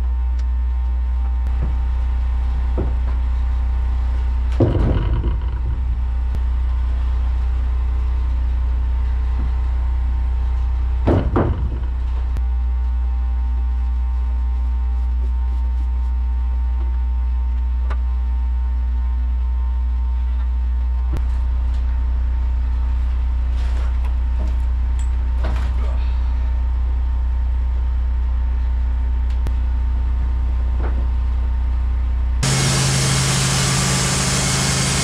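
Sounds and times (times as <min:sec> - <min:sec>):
wooden boards clattering: 0:04.6 - 0:06.2, 0:11.1 - 0:12.2
sawmill engine idling: 0:32.4 - 0:35.0.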